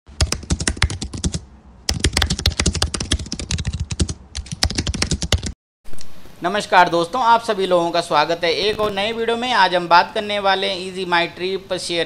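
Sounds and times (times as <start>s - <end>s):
rapid keyboard typing: 0.1s - 5.6s.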